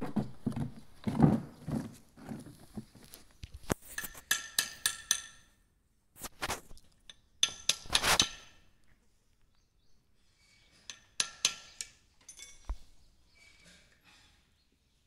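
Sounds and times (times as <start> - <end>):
metal tools tapping on metal: 3.9 - 5.6, 7.1 - 8.6, 10.8 - 12.8.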